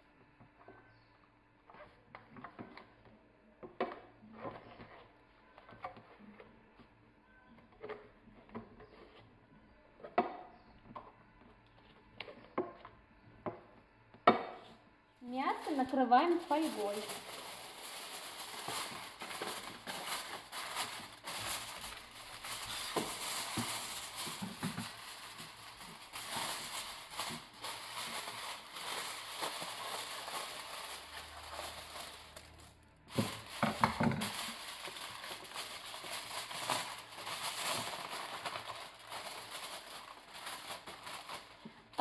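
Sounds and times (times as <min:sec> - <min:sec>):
kitchen foil crinkling: 0:15.2 - 0:42.0.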